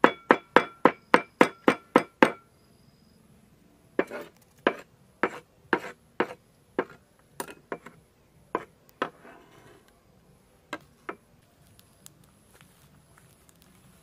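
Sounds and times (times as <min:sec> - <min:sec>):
blade scraping board: 0:04.0 - 0:07.0, 0:08.6 - 0:09.9
cleaver chopping on wooden board: 0:04.0 - 0:08.0.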